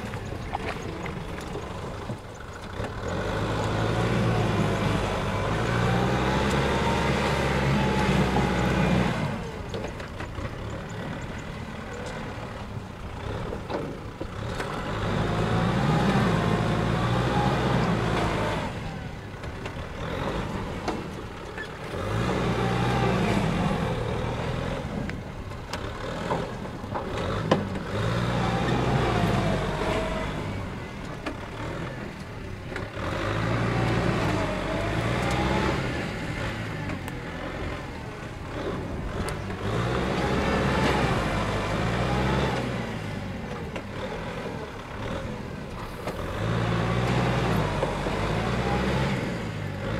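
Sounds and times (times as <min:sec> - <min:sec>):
tractor diesel engine labouring: 0:00.0 - 0:49.9.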